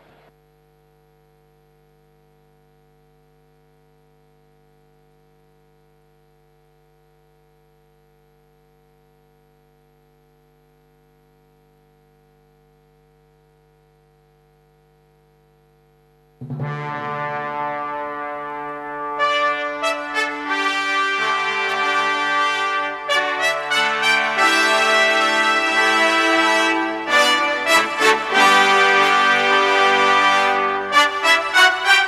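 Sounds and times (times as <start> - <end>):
steady electrical hum: 0.0 - 32.0
brass music: 16.4 - 32.0.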